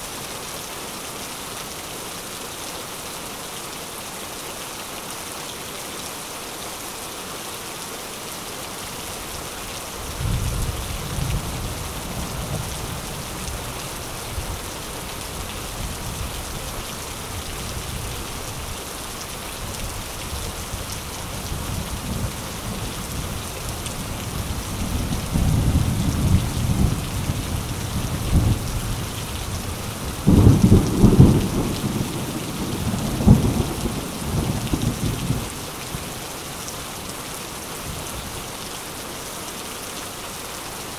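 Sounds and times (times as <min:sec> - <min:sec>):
steady rain: 0:00.0 - 0:40.9
rolling thunder: 0:30.2 - 0:35.4.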